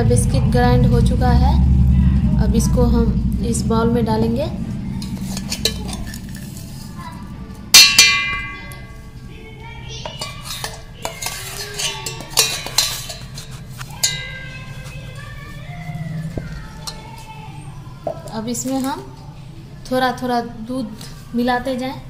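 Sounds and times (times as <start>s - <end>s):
loud ringing clang: 1.6s - 9.2s, 14.0s - 15.4s
spoon clinking against bowl: 10.2s - 14.6s.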